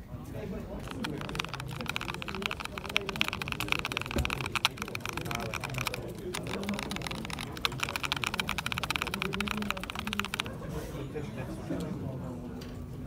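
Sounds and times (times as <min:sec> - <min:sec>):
faint crowd chatter: 0:00.0 - 0:13.0
mechanical keyboard typing: 0:00.8 - 0:10.6.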